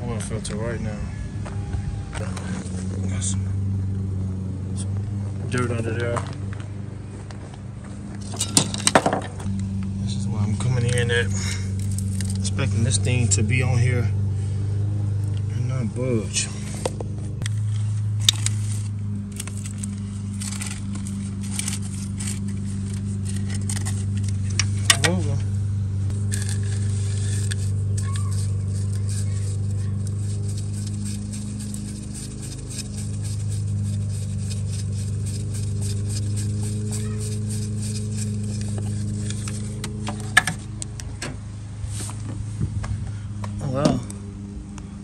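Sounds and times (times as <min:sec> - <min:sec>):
steady low hum: 0:00.0 - 0:45.0
metal clicks and scrapes: 0:08.2 - 0:09.1, 0:11.7 - 0:12.5, 0:16.8 - 0:25.2, 0:26.1 - 0:41.1.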